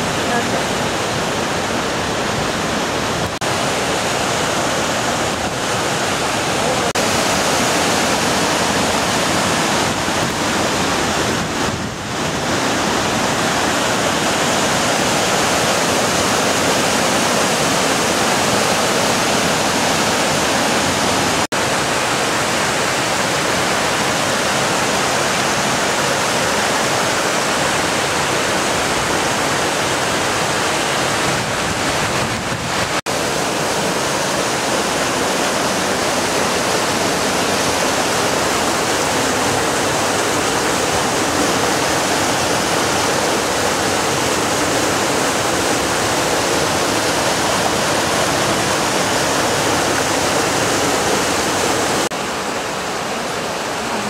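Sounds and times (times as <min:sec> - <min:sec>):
whitewater rushing over boulders: 0:00.0 - 0:54.0.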